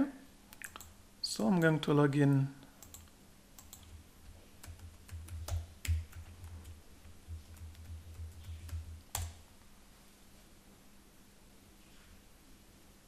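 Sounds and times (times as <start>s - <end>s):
typing on computer keyboard: 2.8s - 9.4s.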